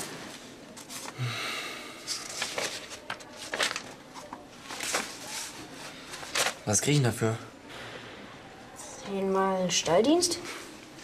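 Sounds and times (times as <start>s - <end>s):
soft breath: 1.0s - 2.6s, 7.5s - 8.8s
paper pages rustling: 2.1s - 6.7s.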